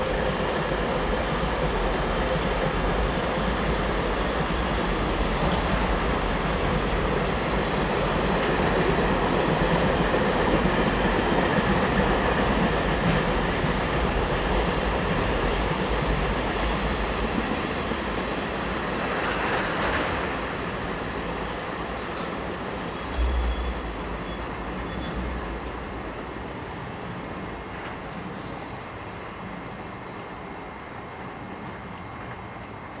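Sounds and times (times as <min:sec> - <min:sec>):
freight train rolling past: 0:00.0 - 0:33.0
low thump: 0:23.1 - 0:24.8.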